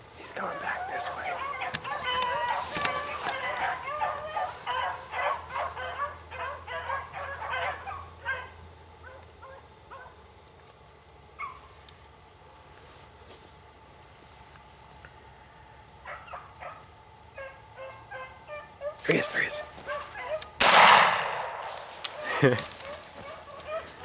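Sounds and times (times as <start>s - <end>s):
pack of hounds baying: 0.2s - 10.2s, 16.0s - 24.0s.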